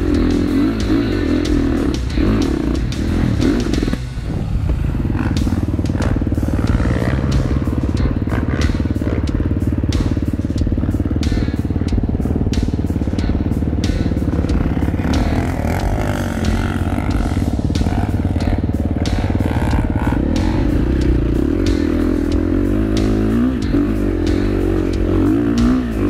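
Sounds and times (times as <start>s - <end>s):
dirt bike engine idling: 0.0s - 26.0s.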